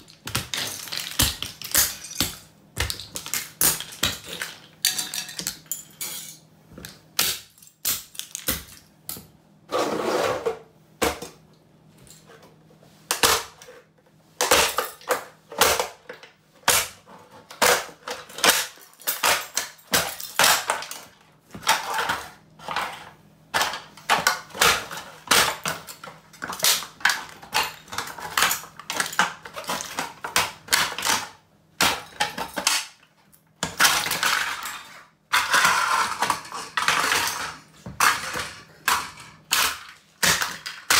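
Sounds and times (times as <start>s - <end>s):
fragments clattering on tiles: 0.1s - 9.2s, 23.6s - 33.0s, 33.6s - 40.9s.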